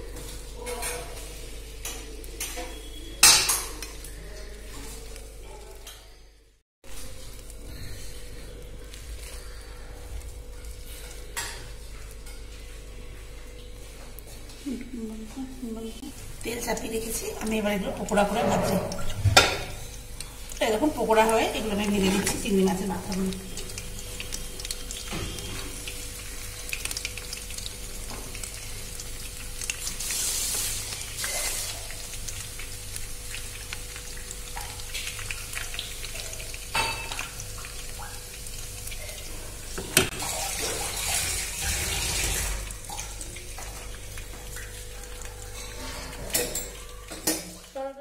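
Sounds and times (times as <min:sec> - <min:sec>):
batter deep-frying in oil: 0:00.0 - 0:48.0.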